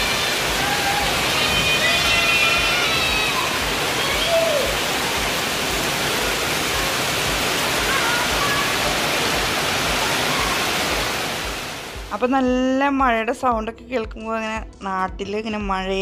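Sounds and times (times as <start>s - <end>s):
faint voices: 0.0s - 11.0s
heavy rain on tiles: 0.0s - 12.2s.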